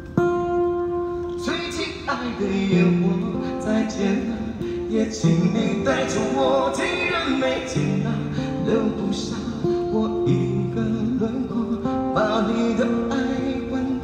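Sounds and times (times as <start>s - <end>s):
acoustic guitar: 0.0s - 14.0s
man singing a slow ballad: 1.3s - 14.0s.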